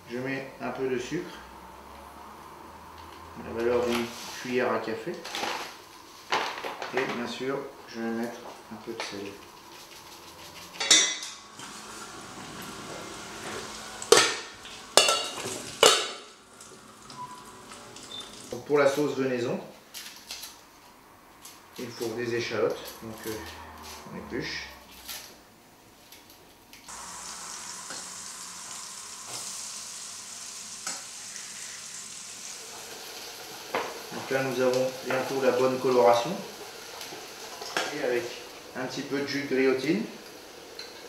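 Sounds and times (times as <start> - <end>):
shallots sizzling in a pan: 11.5 - 18.4, 26.9 - 41.0.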